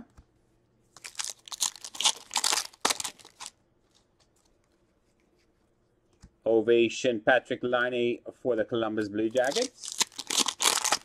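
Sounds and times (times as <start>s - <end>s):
trading cards rustling: 1.0s - 4.8s, 9.3s - 11.0s.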